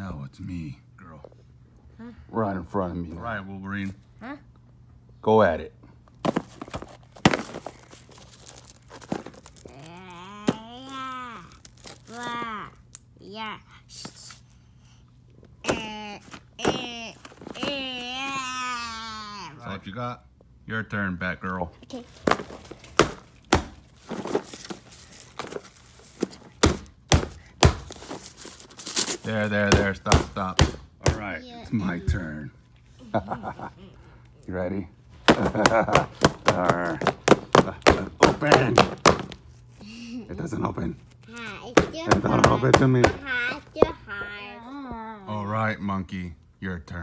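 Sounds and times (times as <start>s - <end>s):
tissue paper crinkling: 6.5s - 12.4s, 22.0s - 26.6s, 27.8s - 29.6s
figure knocking on pinata: 22.2s - 24.3s, 26.6s - 28.0s, 29.6s - 31.3s, 35.3s - 39.4s, 41.8s - 43.2s.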